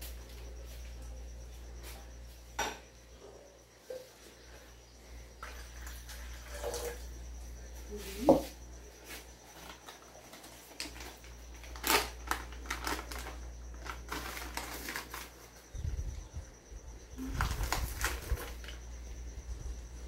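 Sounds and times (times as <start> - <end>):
plastic packet crinkling: 9.6 - 15.4, 17.4 - 18.8.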